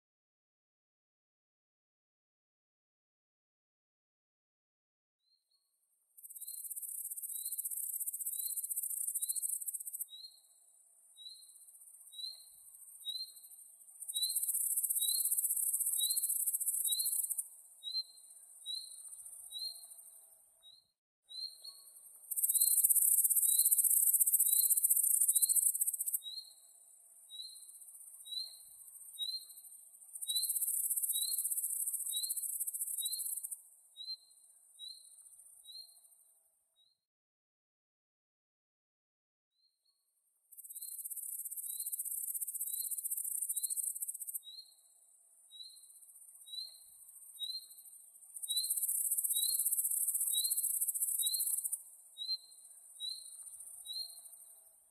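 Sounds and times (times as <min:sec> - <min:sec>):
high-pitched insect trill: 0:06.2 - 0:10.1, 0:11.3 - 0:20.1, 0:21.7 - 0:26.7, 0:27.3 - 0:33.6, 0:40.6 - 0:44.9, 0:45.5 - 0:54.6
cricket chirping: 0:06.2 - 0:20.8, 0:21.6 - 0:36.4, 0:40.5 - 0:54.9.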